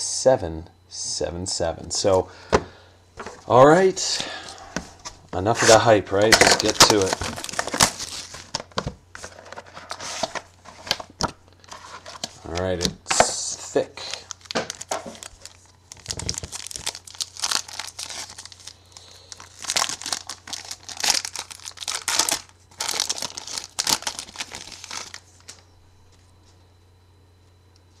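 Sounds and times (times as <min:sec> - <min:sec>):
plastic wrapper crinkling and tearing: 0:05.6 - 0:12.6, 0:14.0 - 0:25.6.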